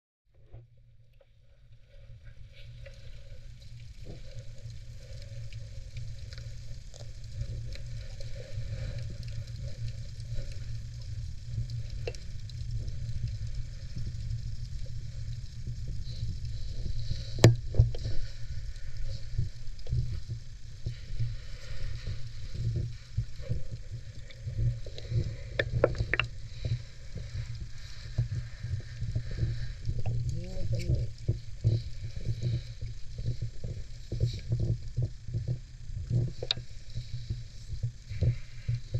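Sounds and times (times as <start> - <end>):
underwater rumble of moving water: 0.3 - 38.9
crackling fizz: 0.4 - 38.9
small underwater clicks: 0.4 - 38.9.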